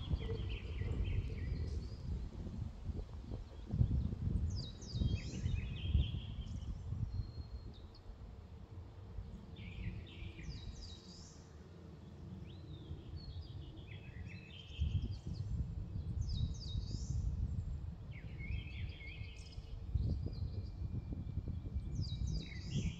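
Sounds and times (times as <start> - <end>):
skylark song: 0.0 - 2.2.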